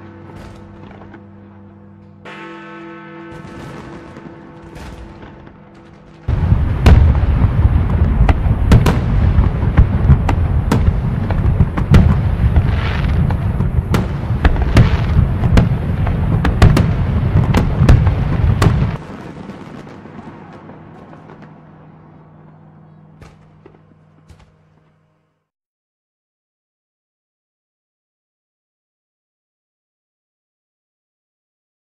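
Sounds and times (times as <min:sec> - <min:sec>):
fireworks shell bursts rumbling: 0:02.3 - 0:21.5
sharp firework bangs: 0:03.3 - 0:21.5
faint firework crackle: 0:03.4 - 0:22.6.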